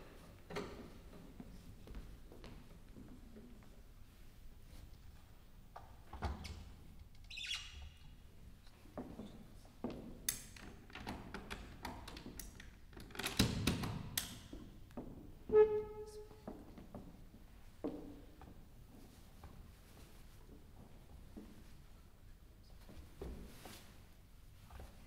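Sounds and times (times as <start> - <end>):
short squeaks: 7.3 - 8.0, 15.5 - 16.4.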